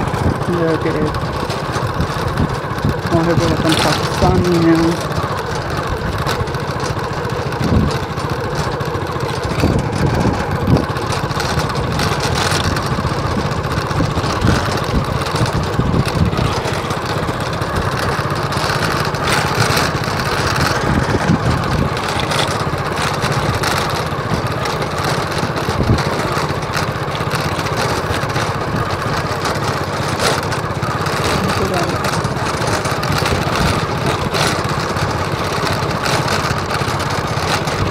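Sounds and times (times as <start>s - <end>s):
wind noise on microphone: 0.0s - 1.1s, 1.9s - 5.0s, 7.6s - 8.1s, 9.4s - 16.6s, 20.4s - 22.4s, 25.7s - 26.2s
vehicle engine running: 0.0s - 37.9s.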